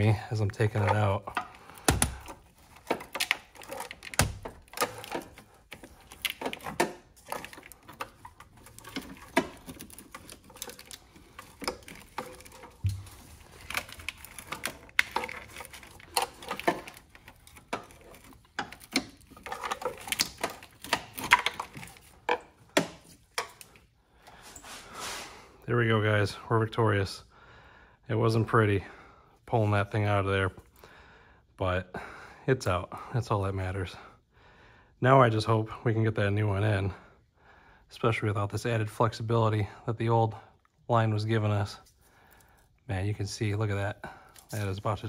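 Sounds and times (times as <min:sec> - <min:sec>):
metal pipe clicking and scraping: 0:00.0 - 0:24.4.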